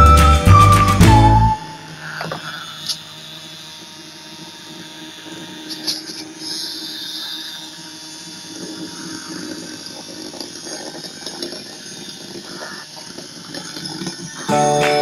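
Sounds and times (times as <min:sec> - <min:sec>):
music: 0:00.0 - 0:01.7, 0:14.5 - 0:15.0
small electric motor whirring: 0:00.0 - 0:15.0.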